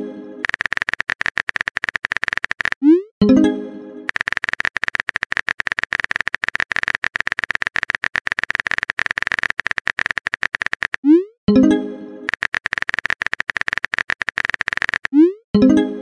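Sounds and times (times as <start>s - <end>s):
keyboard typing clicks: 0.4s - 3.0s, 4.1s - 11.2s, 12.3s - 15.3s.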